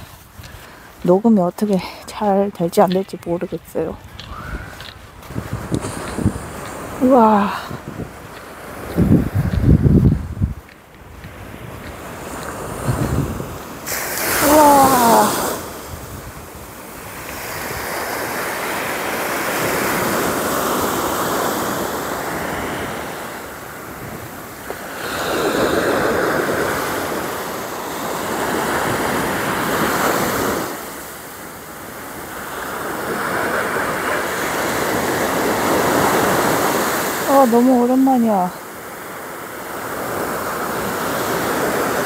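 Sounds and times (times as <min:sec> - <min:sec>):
wind buffeting microphone: 0:00.0 - 0:18.1
sea waves breaking on beach: 0:03.0 - 0:42.0.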